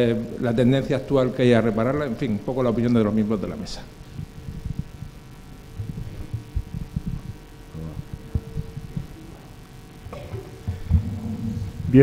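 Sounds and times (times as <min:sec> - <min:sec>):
steady hum: 0:00.0 - 0:12.0
microphone handling thumps: 0:03.8 - 0:12.0.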